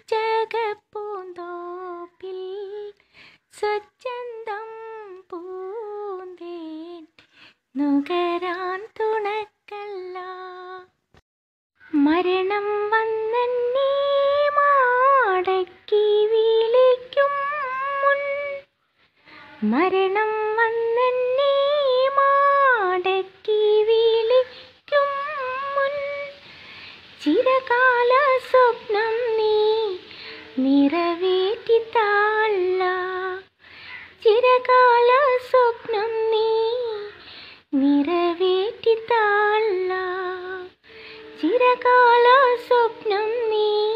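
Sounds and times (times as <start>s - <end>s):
high voice singing unaccompanied: 0.0s - 7.2s, 7.8s - 11.0s, 11.8s - 43.9s.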